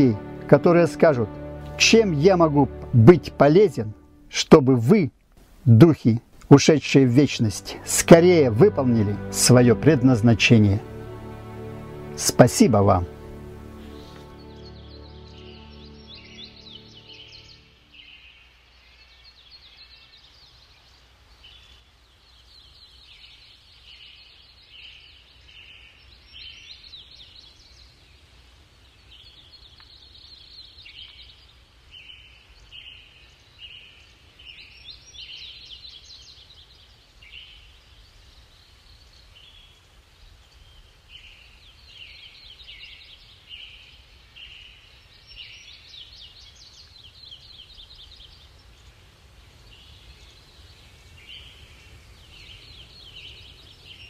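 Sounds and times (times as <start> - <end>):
songbirds chirping: 0.0 - 54.0.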